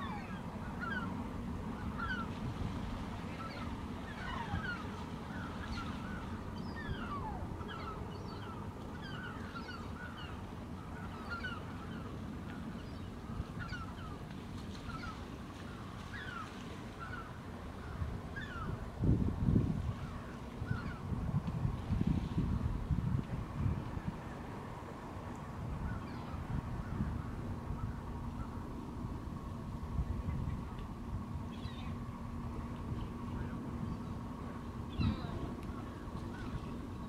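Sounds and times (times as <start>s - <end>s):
birds calling: 1.8s - 2.4s, 3.3s - 18.8s.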